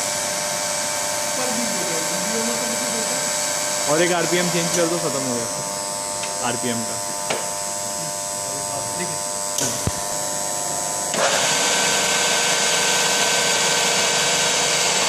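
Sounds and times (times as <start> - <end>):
milling machine gearbox whine: 0.0 - 15.0.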